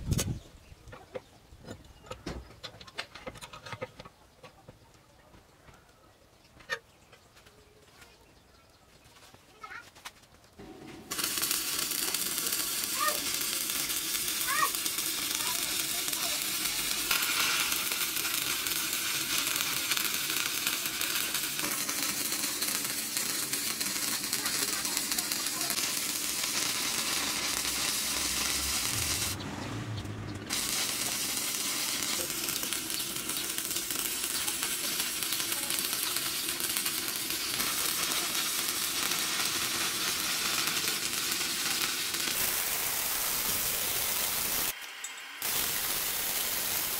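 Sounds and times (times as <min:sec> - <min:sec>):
arc welding crackling sizzle: 0:10.6 - 0:46.9.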